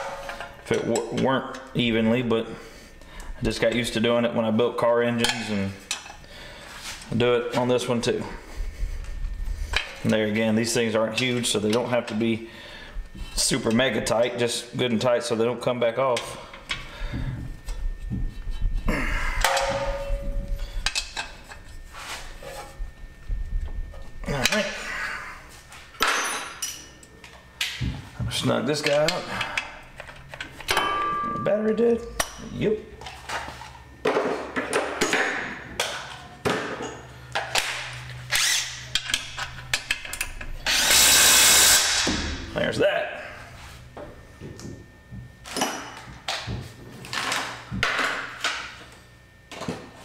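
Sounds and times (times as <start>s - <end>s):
ringing metallic clank: 19.4s - 20.5s, 30.7s - 32.5s
power tool running: 37.6s - 39.4s, 40.4s - 42.4s.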